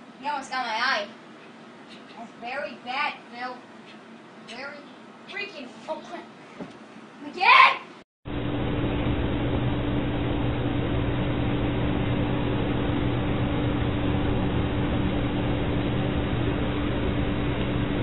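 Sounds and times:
vacuum cleaner running: 8.3s - 18.0s.

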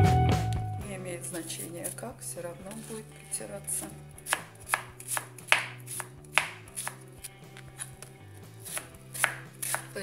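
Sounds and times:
knife tapping cutting board: 4.3s - 7.0s, 8.7s - 9.9s.

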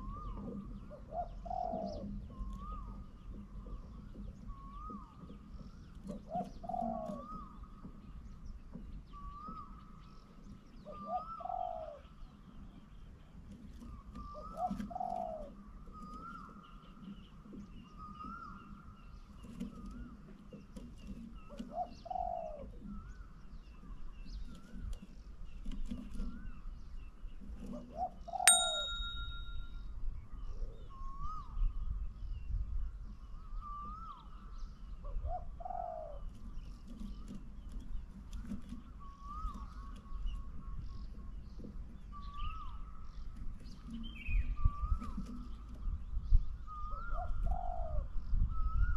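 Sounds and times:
dove cooing: 0.9s - 2.8s, 6.2s - 7.5s, 10.9s - 12.0s, 14.3s - 15.6s, 21.6s - 22.7s
bright chime: 28.5s - 29.7s.

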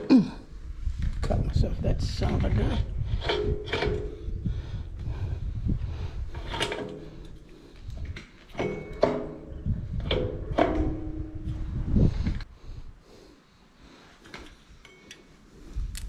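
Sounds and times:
low scraping and rattling: 0.9s - 12.5s
metal clanks with ringing: 8.5s - 11.6s.

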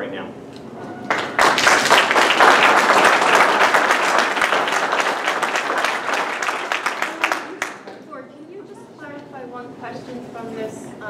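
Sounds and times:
audience applauding: 1.0s - 8.1s.

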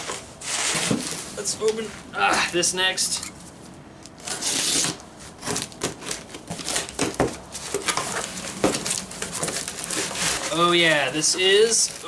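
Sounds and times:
cardboard scrapes and crinkles: 0.0s - 1.5s, 4.2s - 12.0s
packing tape slit and torn: 4.1s - 7.0s.

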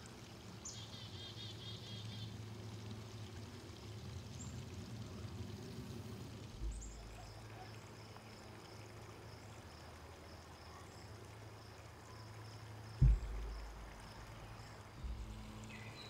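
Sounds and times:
low hum and hiss: 0.0s - 16.0s
low thump: 6.6s - 7.2s, 13.0s - 14.2s, 15.0s - 15.7s.

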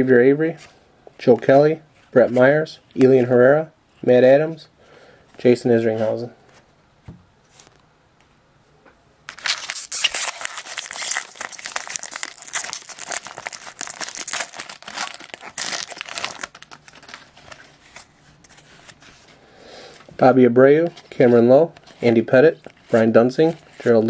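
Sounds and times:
foil wrapper crinkling and tearing: 9.3s - 18.1s
cards rustling: 9.3s - 24.0s.

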